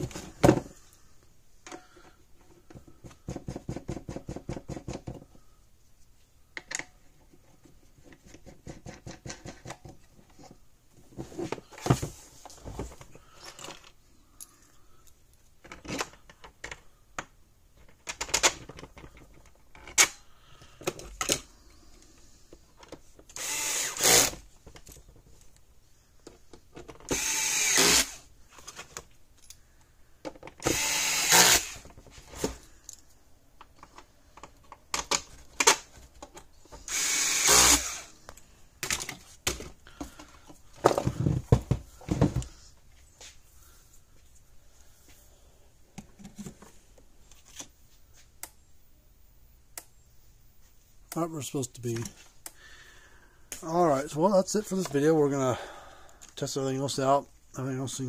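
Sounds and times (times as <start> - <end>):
cordless screwdriver running: 23.4 - 24.4, 27.1 - 28.2, 30.6 - 31.8, 36.9 - 38.1.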